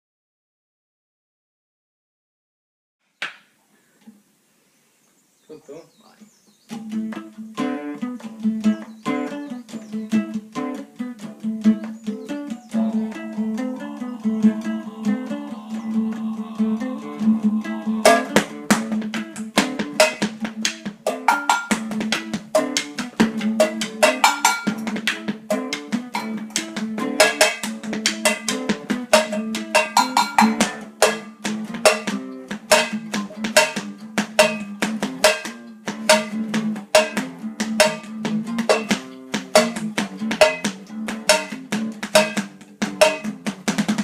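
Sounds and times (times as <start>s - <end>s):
out-of-tune classical guitar: 6.1s - 44.0s
drumming on kitchen objects: 17.2s - 44.0s.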